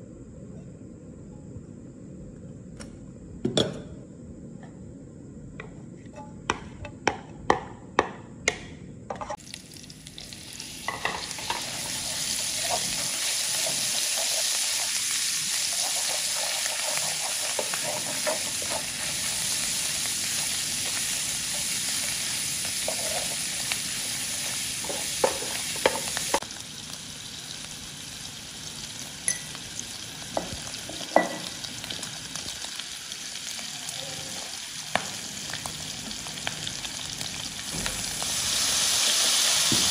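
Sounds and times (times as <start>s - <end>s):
spatula knocking on pan: 6.5s - 8.7s
meat sizzling in hot oil: 9.4s - 39.9s.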